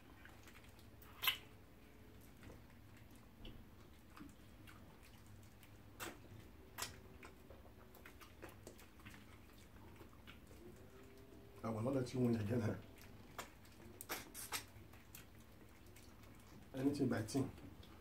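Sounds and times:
wet mouth smacks while eating: 0:00.4 - 0:01.6, 0:03.4 - 0:10.6, 0:13.0 - 0:16.5.

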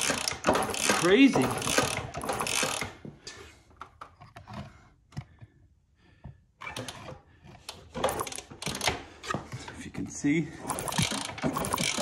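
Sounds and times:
motorcycle engine turning over: 0:10.7 - 0:12.0.

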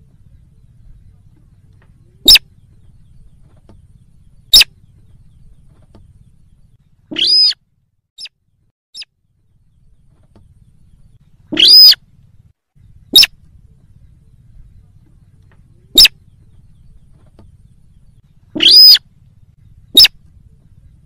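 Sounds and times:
rail bird squealing calls: 0:02.2 - 0:02.5, 0:04.5 - 0:04.7, 0:07.1 - 0:07.6, 0:11.5 - 0:12.0, 0:13.1 - 0:13.4, 0:15.9 - 0:16.2, 0:18.5 - 0:19.1, 0:19.9 - 0:20.2.

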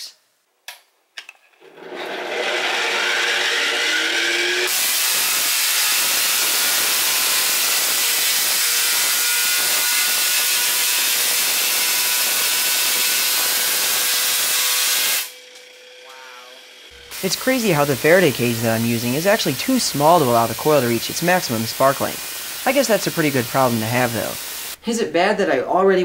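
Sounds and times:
angle grinder whine: 0:01.6 - 0:24.8
crackling buzz of electric sparks: 0:04.6 - 0:16.2, 0:17.0 - 0:24.8.

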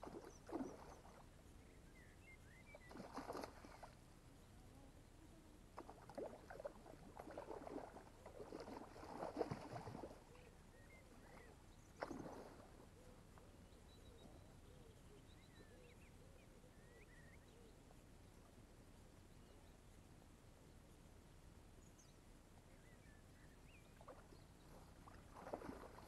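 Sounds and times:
water splashing: 0:00.0 - 0:01.3, 0:02.7 - 0:04.0, 0:05.8 - 0:10.4, 0:11.2 - 0:12.9, 0:24.0 - 0:26.0
faint bird chirps: 0:00.0 - 0:18.6, 0:19.2 - 0:21.1, 0:21.8 - 0:26.0.

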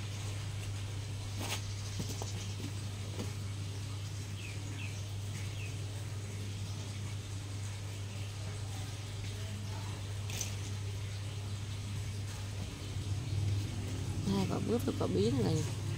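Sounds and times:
steady low hum: 0:00.0 - 0:15.9.

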